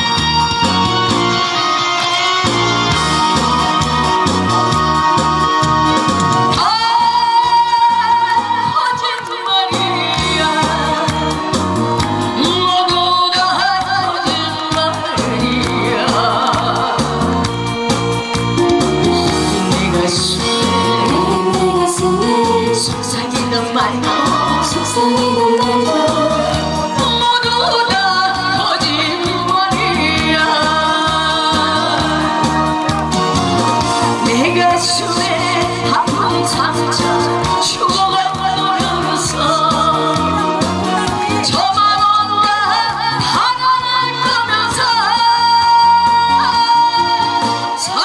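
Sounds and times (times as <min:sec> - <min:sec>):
bass and keyboard accompaniment: 0:00.0 - 0:48.0
woman singing into microphone: 0:00.0 - 0:48.0.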